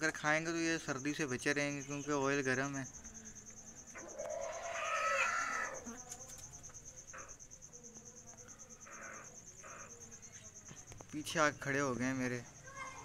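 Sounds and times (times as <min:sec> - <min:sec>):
crickets trilling: 0:00.0 - 0:13.0
hen calling: 0:04.0 - 0:05.9.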